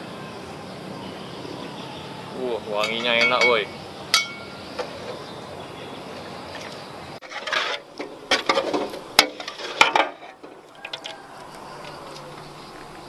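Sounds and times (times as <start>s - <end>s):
sharp clinks: 2.8s - 4.6s
metal spatula scraping a wok: 7.2s - 10.4s.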